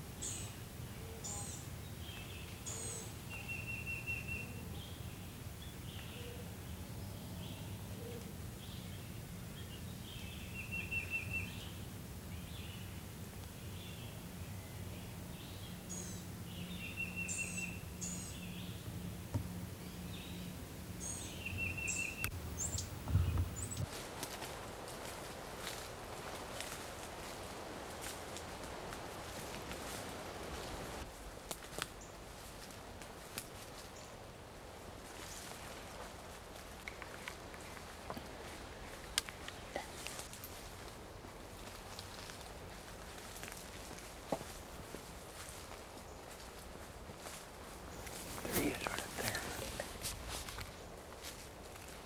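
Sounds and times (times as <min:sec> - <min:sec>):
low steady hum: 0:00.0 - 0:52.0
songbird singing with buzzy trill: 0:00.1 - 0:19.0, 0:19.7 - 0:23.9
woodland birds chirping: 0:00.2 - 0:23.9, 0:36.8 - 0:40.6, 0:47.2 - 0:51.2
low background rumble: 0:17.7 - 0:23.9
dull thump: 0:23.0 - 0:23.8.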